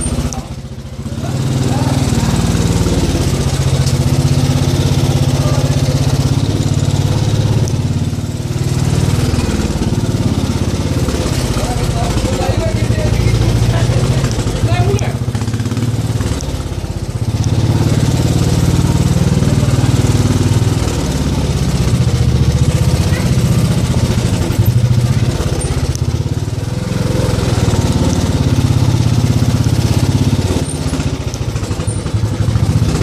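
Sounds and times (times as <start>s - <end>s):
small motorcycle engine running: 0.0s - 33.0s.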